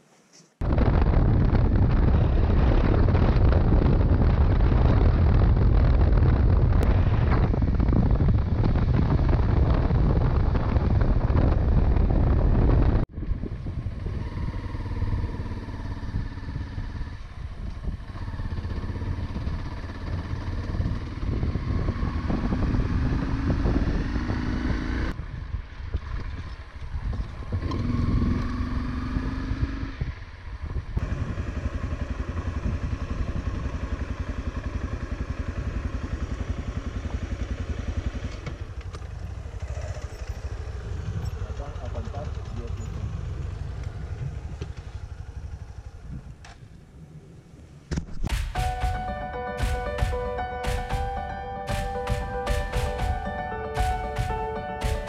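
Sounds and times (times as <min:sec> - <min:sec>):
wind rush on microphone: 0:00.6 - 0:34.7, 0:43.0 - 0:48.5
motorcycle engine revving: 0:13.1 - 0:25.2, 0:26.0 - 0:46.4.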